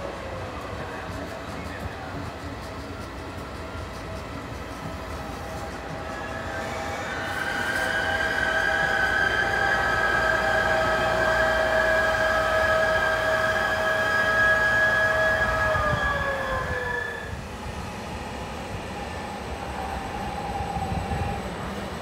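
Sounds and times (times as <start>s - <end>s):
locomotive high whine: 0.0s - 22.0s.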